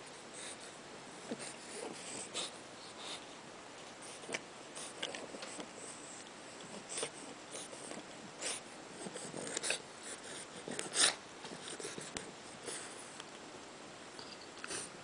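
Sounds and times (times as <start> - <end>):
puppy snuffling and snorting: 4.0 - 13.1.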